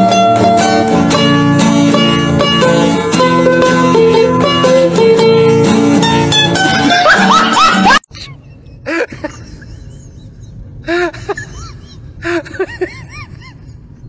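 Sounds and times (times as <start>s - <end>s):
banjo-like plucked string music: 0.0s - 8.0s.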